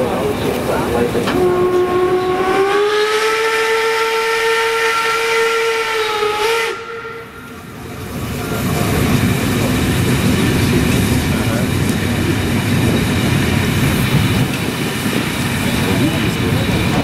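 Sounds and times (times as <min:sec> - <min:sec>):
train running noise: 0:00.0 - 0:17.0
steam whistle blast: 0:01.4 - 0:07.6.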